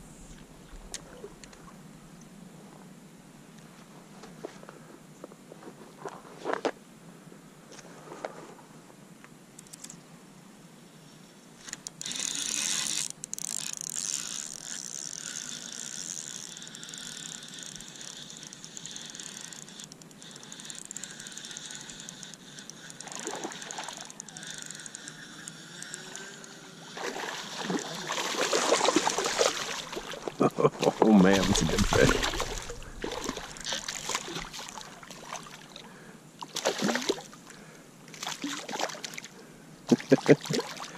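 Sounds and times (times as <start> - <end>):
fishing reel ratcheting and whirring: 11.6 - 30.4, 31.0 - 35.8
fish splashing at surface: 27.0 - 30.4, 31.2 - 35.6.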